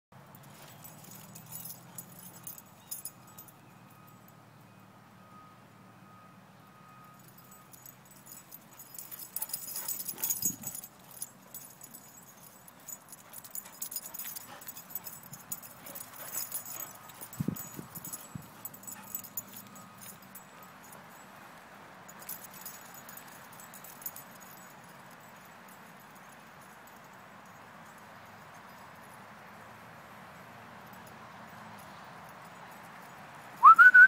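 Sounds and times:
collar tags jingling: 0.2s - 4.7s, 6.8s - 34.0s.

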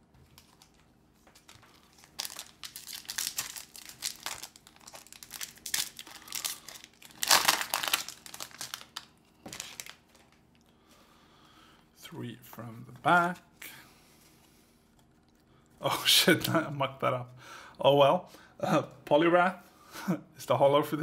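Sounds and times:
foil wrapper crinkling and tearing: 0.3s - 10.6s.

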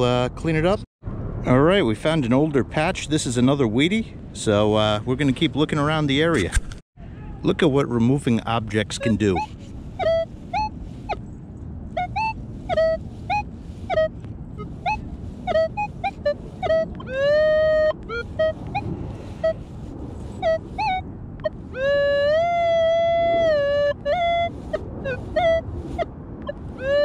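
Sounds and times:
metal detector beeps: 8.8s - 11.3s, 12.0s - 19.7s, 20.4s - 27.0s
metal detector held tone: 8.9s - 11.3s, 12.0s - 19.7s, 20.4s - 27.0s.

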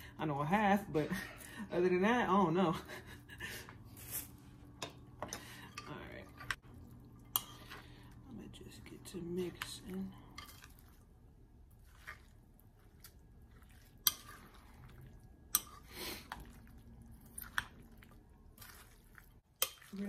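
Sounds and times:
wet squishing of guacamole: 9.5s - 20.0s.

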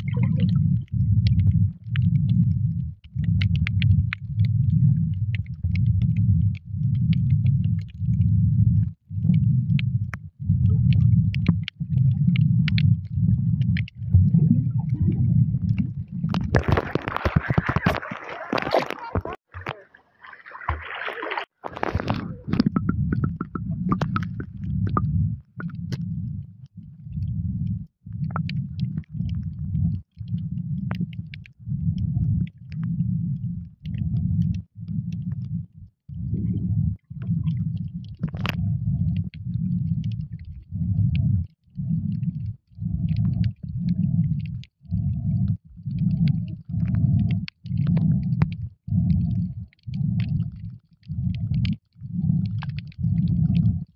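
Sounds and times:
faint clicks and crackles: 0.0s - 53.9s
muffled underwater rumble: 0.0s - 53.9s
splash at water surface: 16.6s - 22.4s.

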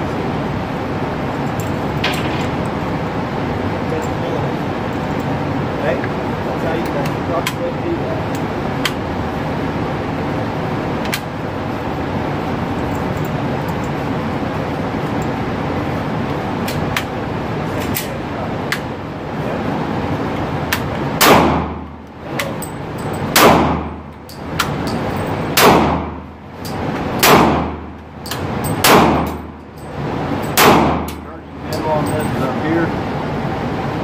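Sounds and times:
gunshots ringing off walls: 21.2s - 21.8s, 23.3s - 24.0s, 25.6s - 26.2s, 27.2s - 27.9s, 28.8s - 29.5s, 30.6s - 31.2s.

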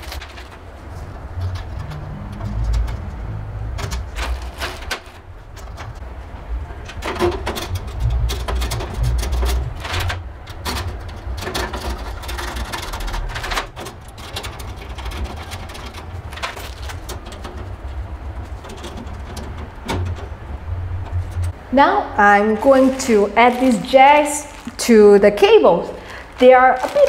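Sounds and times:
metal clicks and rattles: 0.0s - 6.0s, 6.8s - 21.6s.

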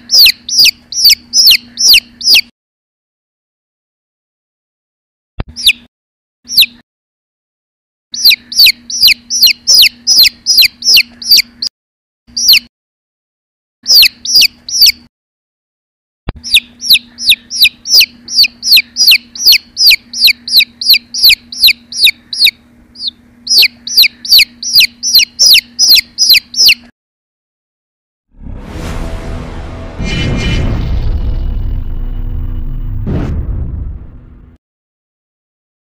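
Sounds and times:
chick peeping: 0.0s - 2.5s, 5.5s - 5.9s, 6.5s - 6.8s, 8.2s - 11.7s, 12.3s - 12.7s, 13.8s - 15.0s, 16.4s - 26.9s.

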